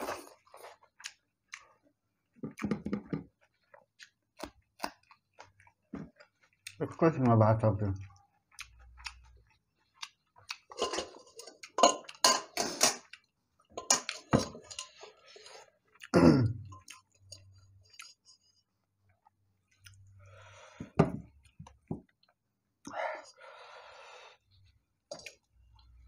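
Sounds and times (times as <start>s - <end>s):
close-miked chewing: 0.0s - 2.6s, 3.2s - 12.3s, 13.0s - 20.5s.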